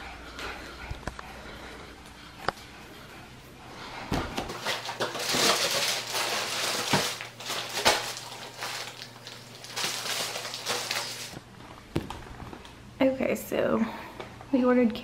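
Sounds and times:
plastic wrapping crinkling: 4.5s - 11.4s.

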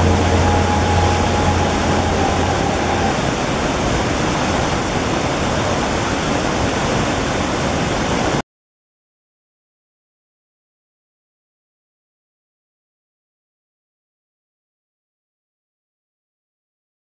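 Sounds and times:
faint tone: 0.0s - 3.8s
low hum: 0.0s - 4.5s
running water rushing: 0.0s - 8.4s.

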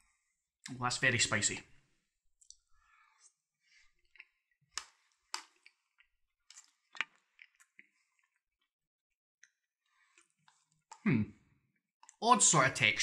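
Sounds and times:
person quietly chewing: 2.4s - 11.2s
wet mouth clicks: 4.0s - 8.4s.

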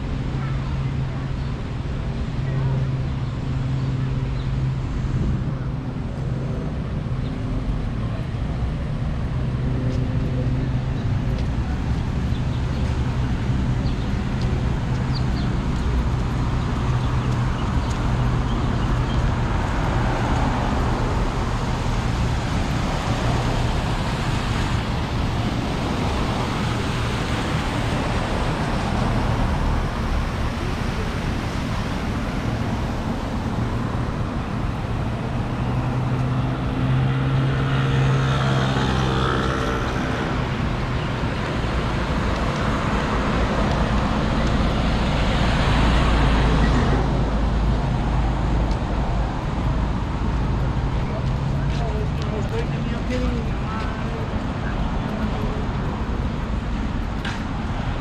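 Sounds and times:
city road traffic: 0.0s - 58.0s
loud vehicle engine passing: 15.5s - 58.0s.

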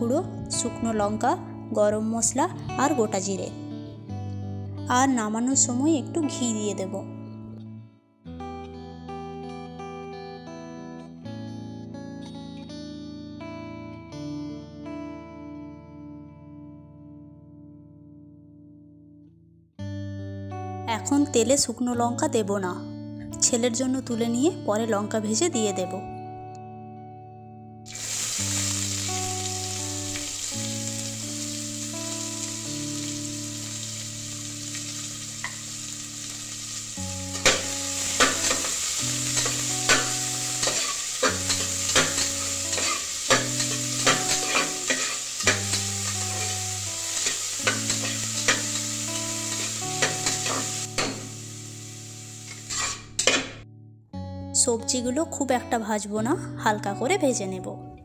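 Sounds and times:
vegetables sizzling in hot oil: 27.9s - 53.6s
metal spatula scraping a pot: 39.4s - 46.6s, 52.5s - 53.6s.

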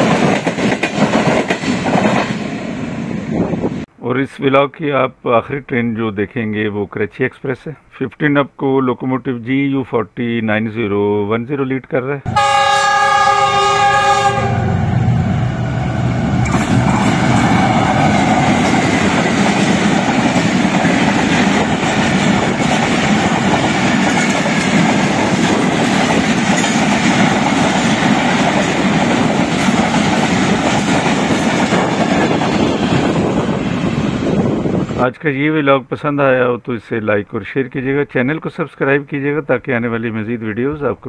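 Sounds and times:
train wheels rumbling on rails: 0.0s - 3.9s, 14.3s - 35.0s.

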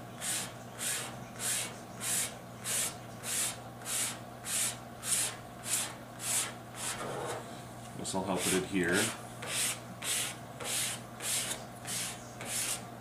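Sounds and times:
plastic card scraping over paper: 6.3s - 7.5s.

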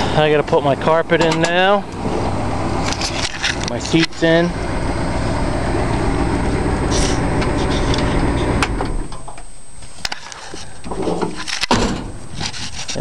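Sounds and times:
car engine running: 0.0s - 9.4s.

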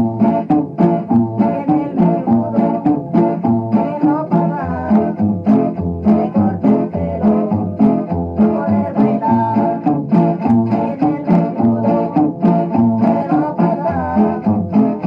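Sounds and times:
plucked guitar music: 0.0s - 15.0s
low bass notes: 4.5s - 10.8s.

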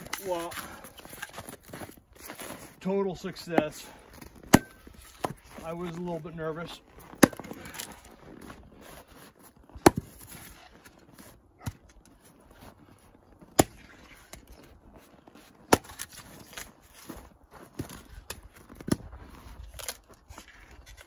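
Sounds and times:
axe chopping firewood: 3.5s - 5.6s, 7.0s - 8.1s, 9.7s - 10.6s, 11.2s - 12.2s, 13.4s - 14.7s, 15.6s - 17.2s.

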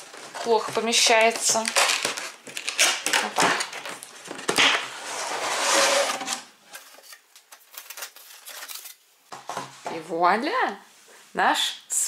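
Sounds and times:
cardboard rustling: 0.0s - 9.9s
cardboard knocks and scrapes: 9.3s - 9.9s.

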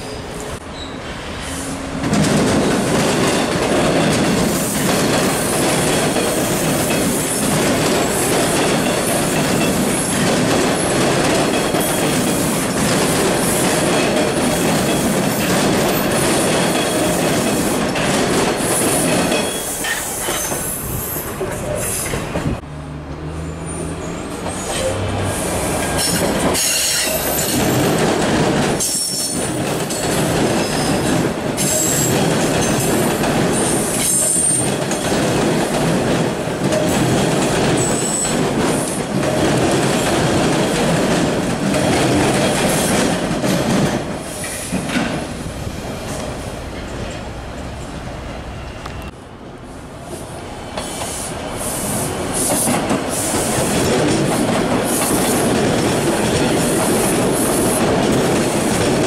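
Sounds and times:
high wheel squeals: 0.0s - 1.7s
subway train rumbling past: 0.0s - 59.0s
wheels clacking over rail joints: 2.0s - 20.7s.

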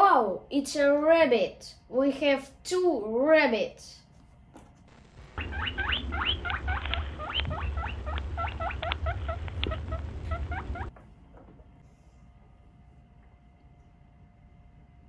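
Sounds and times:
high rising squeaks: 4.9s - 10.9s
low rumble: 4.9s - 10.9s.

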